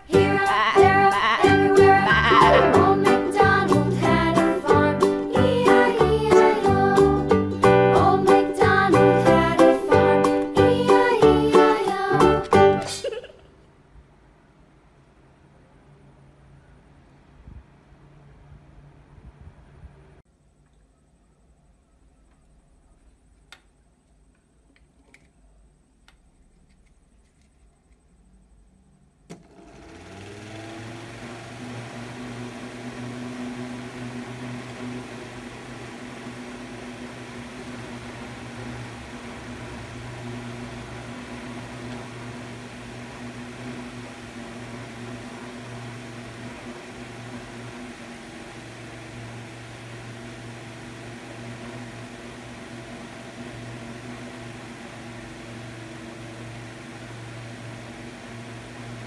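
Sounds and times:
electric fan motor hum: 0:00.0 - 0:13.3, 0:28.2 - 0:59.0.

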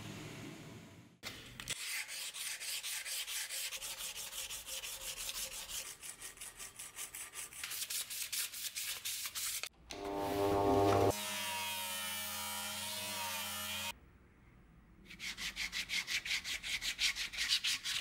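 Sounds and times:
sandpaper sanding metal blade: 0:01.7 - 0:09.7, 0:15.1 - 0:18.0.

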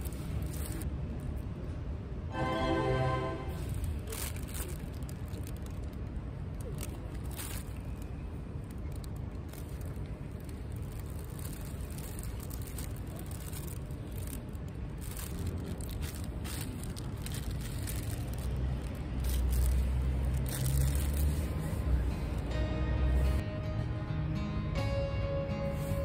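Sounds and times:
plastic bag crinkling: 0:00.0 - 0:00.9, 0:03.5 - 0:22.5
street traffic rumble: 0:00.0 - 0:26.0.

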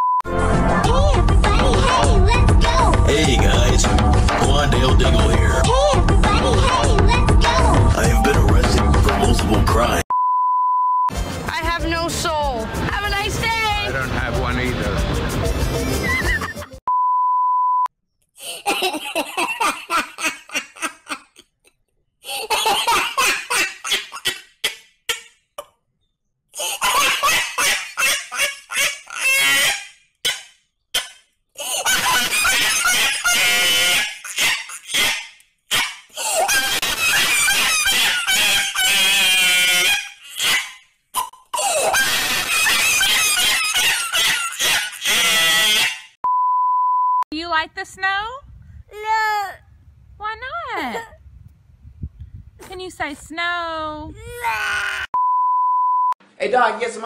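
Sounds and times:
steady beep tone: 0:10.1 - 0:11.1, 0:46.2 - 0:47.3, 0:55.2 - 0:56.2
person giggling: 0:18.4 - 0:22.7
cartoon wheezing laughter: 0:18.4 - 0:25.3, 0:26.6 - 0:46.1.

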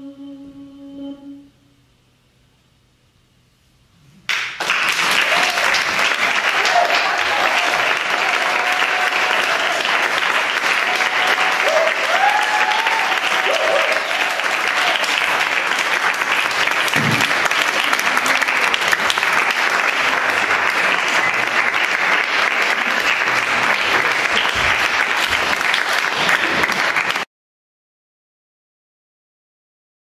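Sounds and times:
audience applauding: 0:04.3 - 0:27.3.

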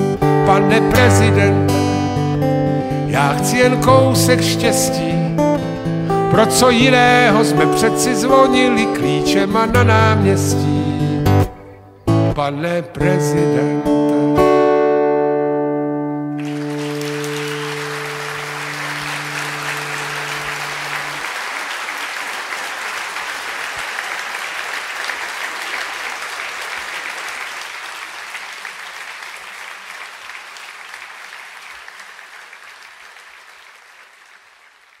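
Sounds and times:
guitar chord ringing: 0:14.1 - 0:21.2
audience applauding: 0:16.4 - 0:35.0.

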